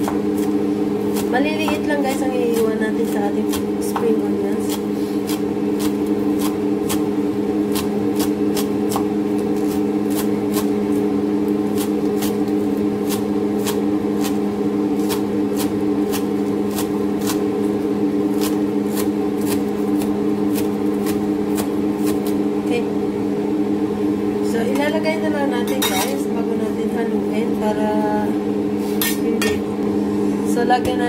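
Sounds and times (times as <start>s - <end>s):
knife chopping on wooden board: 0.0s - 1.9s, 2.5s - 7.1s, 7.7s - 10.7s.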